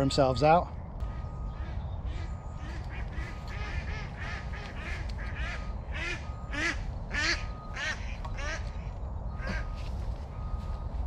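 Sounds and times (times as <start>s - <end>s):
ducks quacking: 1.0s - 9.8s.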